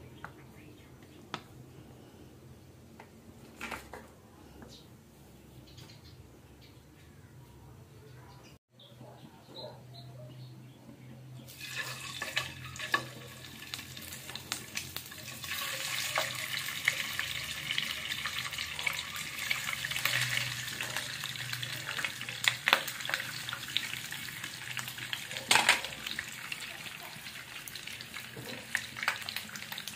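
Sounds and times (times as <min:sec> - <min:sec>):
meat sizzling in hot oil: 0:11.5 - 0:29.9.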